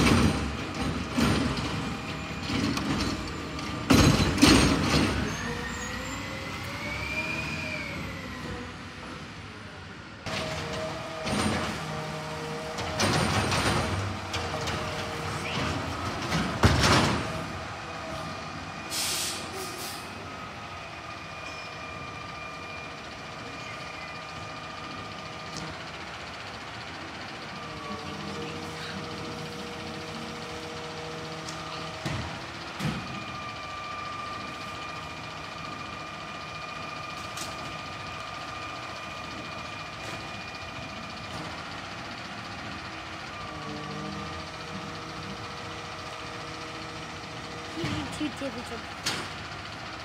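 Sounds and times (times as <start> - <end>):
garbage truck engine running: 0.0 - 50.0
loud burst of air: 18.9 - 20.2.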